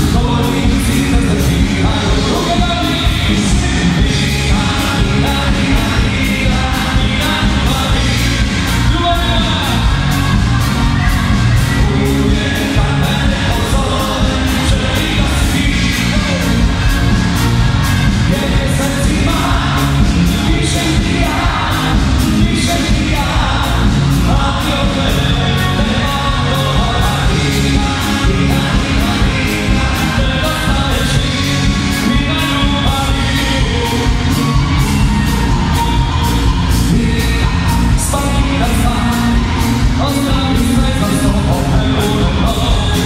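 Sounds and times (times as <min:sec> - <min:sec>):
keyboards: 0:00.0 - 0:43.0
live pop-rock band: 0:00.0 - 0:43.0
person singing: 0:00.0 - 0:43.0
steady drum beat: 0:00.0 - 0:43.0.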